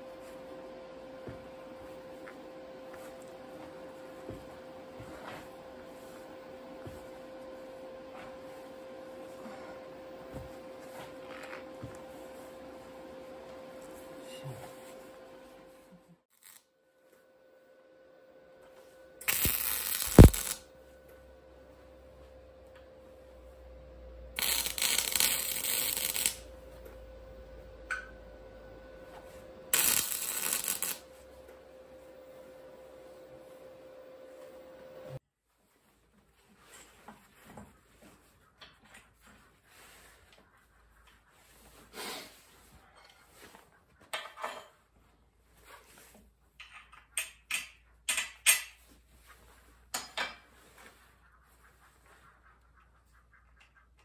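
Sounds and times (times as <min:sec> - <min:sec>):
welding arc crackling on steel: 0:16.3 - 0:16.7, 0:19.2 - 0:20.7, 0:24.4 - 0:26.5, 0:29.7 - 0:31.2.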